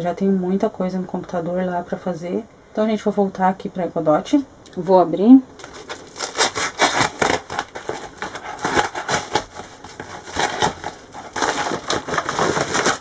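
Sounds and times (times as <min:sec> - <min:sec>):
paper mailer being torn open: 0:05.6 - 0:13.0.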